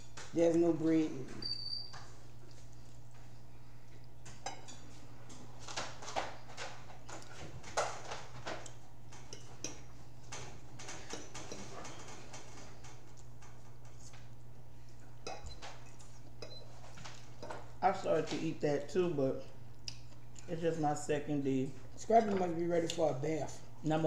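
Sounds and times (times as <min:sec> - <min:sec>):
steady low hum: 0:00.0 - 0:24.0
chewing: 0:13.0 - 0:17.6, 0:19.6 - 0:20.5.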